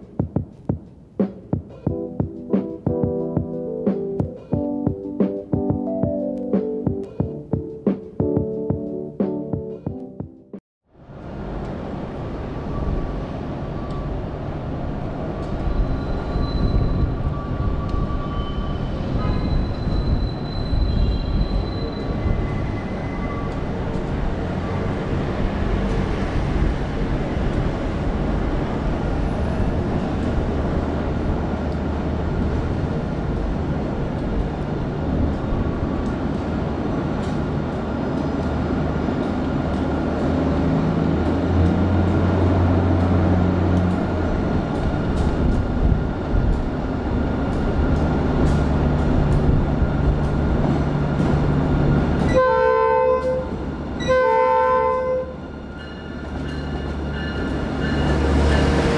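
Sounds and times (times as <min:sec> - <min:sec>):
diesel locomotive engine drone: 0:10.9 - 0:58.9
locomotive horn: 0:19.1 - 0:19.6, 0:52.3 - 0:55.4.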